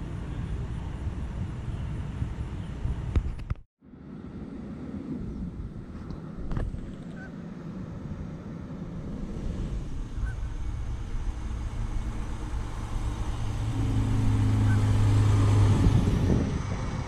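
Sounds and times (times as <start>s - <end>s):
fire engine driving past: 3.9s - 17.0s.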